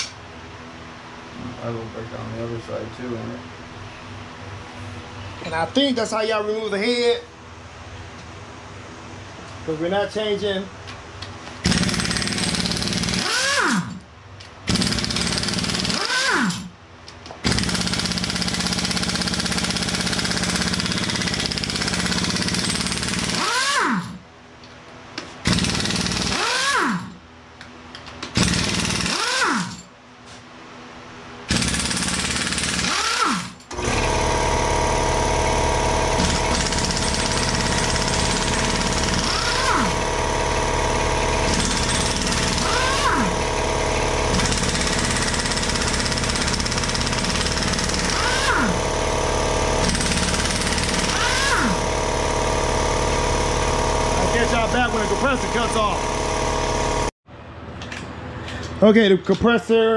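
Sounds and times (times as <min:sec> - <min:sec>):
air compressor running: 0:11.5 - 0:24.2, 0:25.2 - 0:27.2, 0:28.2 - 0:30.4, 0:31.4 - 0:57.2
pneumatic impact wrench hammering: 0:11.6 - 0:24.2, 0:25.2 - 0:27.2, 0:27.9 - 0:29.9, 0:31.5 - 0:57.1
air motor whine: 0:32.8 - 0:57.1.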